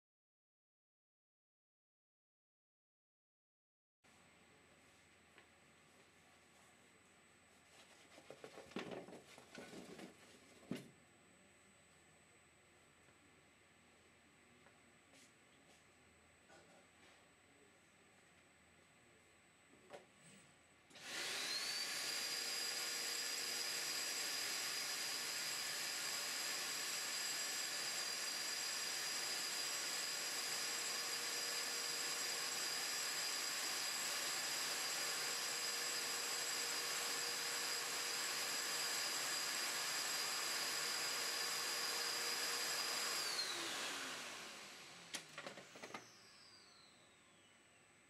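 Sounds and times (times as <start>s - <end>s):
vacuum cleaner whine and suction: 20.9s - 48.0s.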